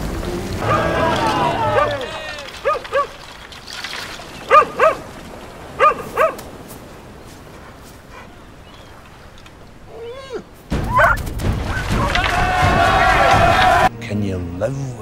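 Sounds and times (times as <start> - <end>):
loud noisy rush: 0.0 - 2.7
dog barking: 1.7 - 3.2, 4.5 - 5.0, 5.8 - 6.4, 10.9 - 11.2
dog yelping: 4.5 - 5.0, 5.8 - 6.4, 10.0 - 11.2.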